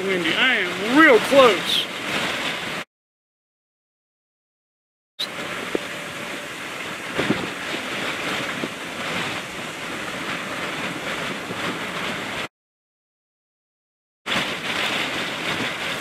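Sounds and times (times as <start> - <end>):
gusty wind on microphone: 0.0 - 2.8, 5.2 - 12.5, 14.3 - 16.0.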